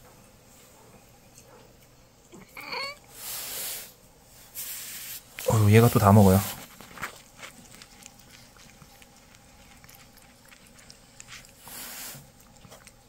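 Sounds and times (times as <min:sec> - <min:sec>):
cat lapping and chewing: 0:05.3 - 0:13.0.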